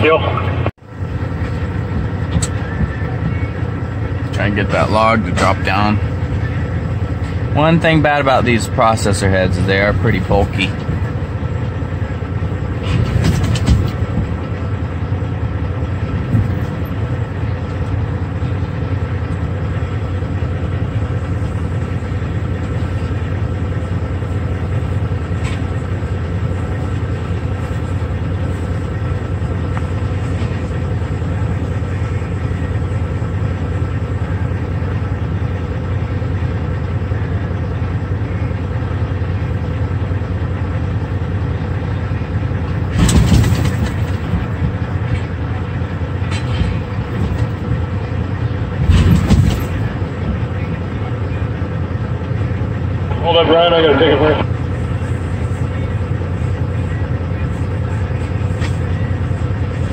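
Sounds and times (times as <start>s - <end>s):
diesel engine drone: 0.0s - 59.9s
brief clatter: 12.8s - 14.0s, 42.9s - 44.3s.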